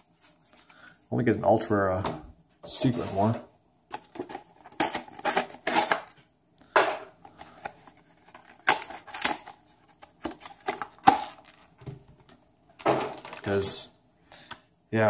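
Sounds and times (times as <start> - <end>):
cards tapping and rustling: 6.8 - 13.8.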